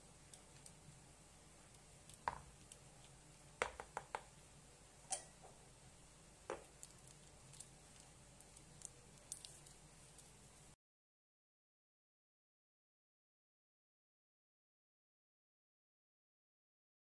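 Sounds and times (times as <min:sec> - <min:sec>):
faint clicks and knocks of utensils: 0:00.2 - 0:00.8, 0:05.1 - 0:05.6, 0:06.5 - 0:10.4.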